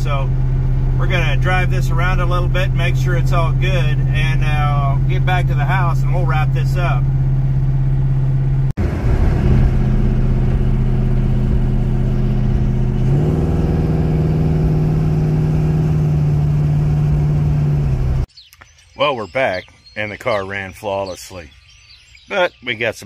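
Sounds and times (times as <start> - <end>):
car engine drone: 0.0 - 18.3.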